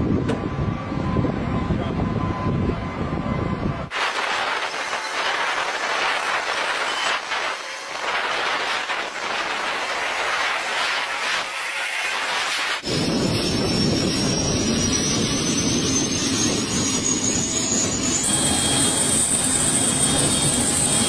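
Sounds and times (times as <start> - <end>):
hissing rushing mechanical noise: 3.9 - 21.0.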